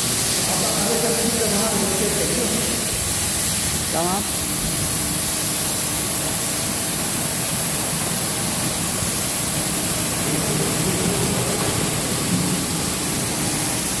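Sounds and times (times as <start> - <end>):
carpet washing machine running: 0.0 - 14.0.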